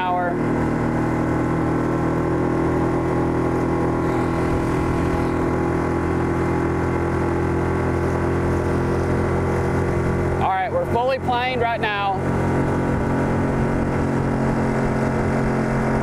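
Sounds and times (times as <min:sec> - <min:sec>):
outboard motor running: 0:00.0 - 0:16.0
water rushing along hull: 0:00.0 - 0:16.0.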